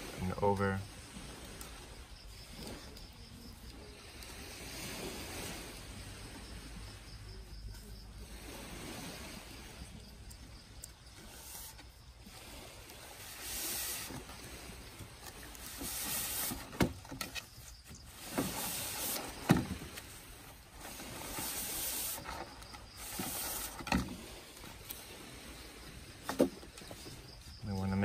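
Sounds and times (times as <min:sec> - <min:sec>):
strap swishing over bamboo: 0:11.1 - 0:27.6.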